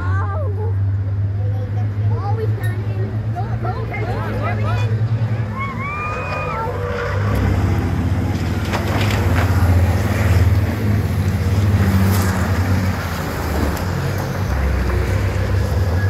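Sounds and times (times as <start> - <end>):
bus engines droning: 0.0 - 16.0.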